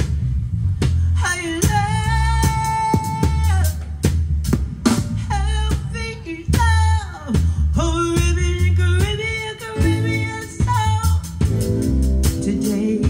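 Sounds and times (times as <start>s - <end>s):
soul band playing: 0.0s - 13.0s
woman singing lead vocal: 1.1s - 4.1s, 5.2s - 11.5s, 12.2s - 13.0s.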